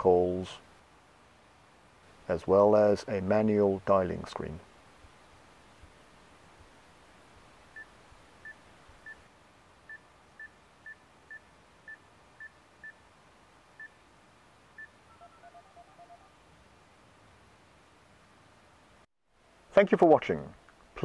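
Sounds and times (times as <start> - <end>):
high confirmation beeps: 15.1 - 16.3.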